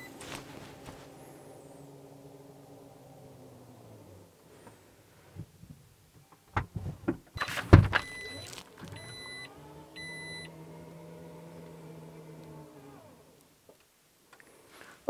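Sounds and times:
motor humming: 0.0 - 4.8, 8.0 - 13.5
short warning beeps: 8.0 - 10.5.

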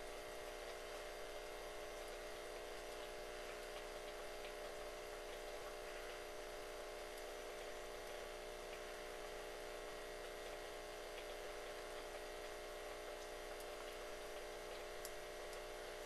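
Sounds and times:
hiss and electrical hum: 0.0 - 16.0
faint gnawing ticks: 2.8 - 6.3.

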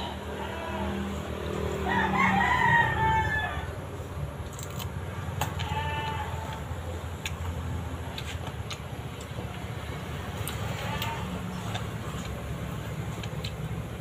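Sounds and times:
rooster crowing: 1.7 - 3.8.

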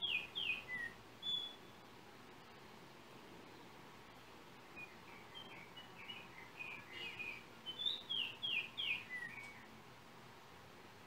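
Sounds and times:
oriole singing whistled notes: 0.0 - 1.8, 4.8 - 9.7
steady hiss: 0.0 - 11.0.

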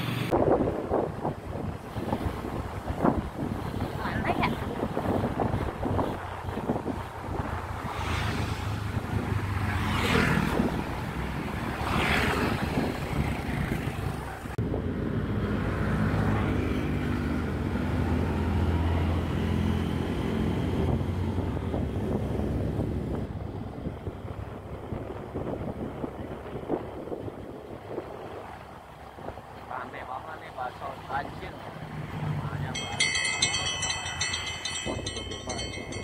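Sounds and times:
wind rushing over microphone: 0.0 - 29.7, 31.2 - 36.0.

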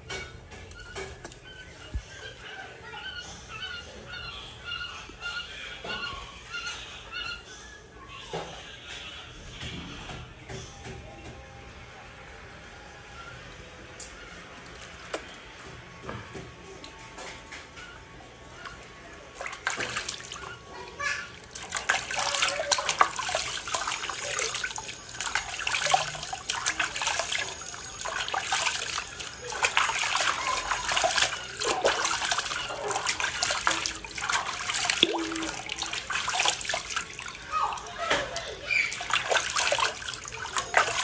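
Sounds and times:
water splashing in a basin: 19.3 - 41.0
tap water running: 19.5 - 41.0.

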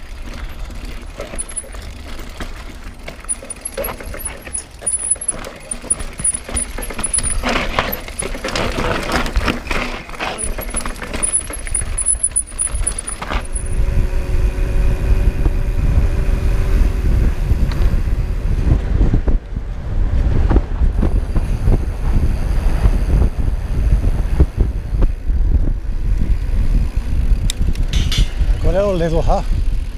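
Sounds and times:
mountain bike clattering on rocks: 0.0 - 13.8
tyres crunching over loose stones: 0.0 - 13.8
tyre hum on smooth tarmac: 0.0 - 14.4
wind rush on microphone: 11.8 - 29.9.

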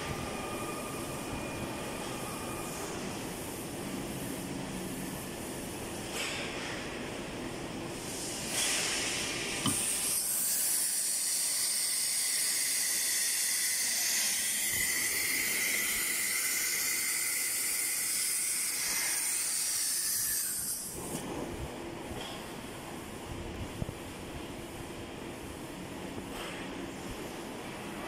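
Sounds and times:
cnc router hissing: 9.6 - 20.9.

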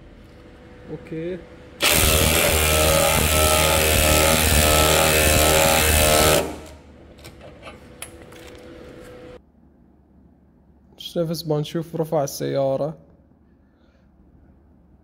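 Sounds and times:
impact driver hammering: 1.8 - 6.8.

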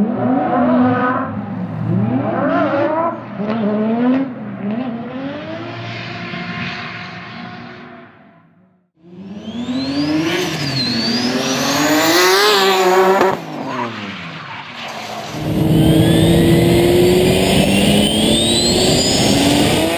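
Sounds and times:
car engine revving: 9.0 - 14.4, 15.0 - 19.9
tyre squeal: 9.5 - 11.9, 13.6 - 19.9
car engine accelerating: 15.0 - 19.9
high whine: 15.2 - 19.9.

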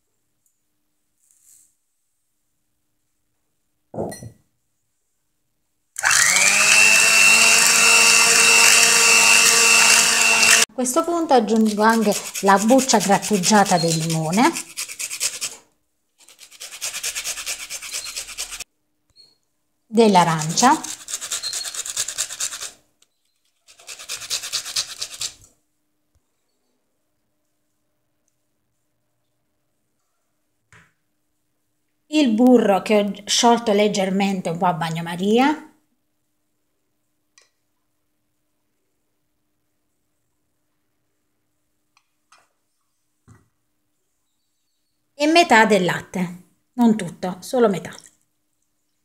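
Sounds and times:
electric hand mixer whine: 6.0 - 10.7
peel scraping on grater: 11.5 - 15.6, 16.2 - 18.6, 20.3 - 22.8, 23.5 - 25.5.

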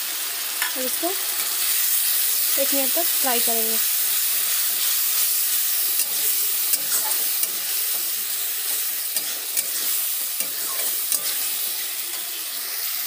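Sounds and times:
masala sizzling in oil: 0.0 - 13.0
spatula scraping a pan: 4.5 - 12.4
spatula clicking against pan: 10.4 - 11.4.

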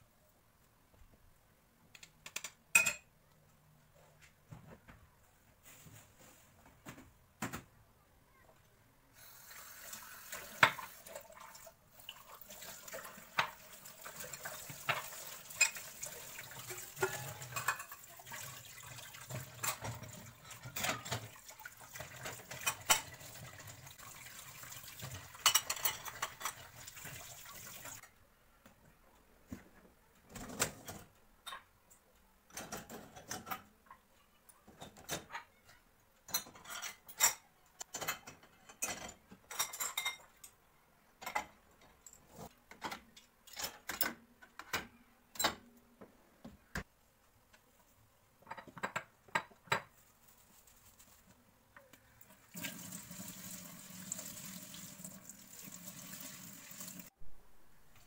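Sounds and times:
crockery clinking: 2.7 - 3.1, 16.9 - 18.2, 25.3 - 26.6, 34.9 - 40.5
tap water running into sink: 9.5 - 28.0, 52.5 - 57.1
dishes set into dishwasher racks: 13.3 - 18.6, 19.2 - 21.4, 22.0 - 23.7, 25.0 - 27.0, 32.5 - 33.8, 34.7 - 35.6, 36.2 - 40.4.

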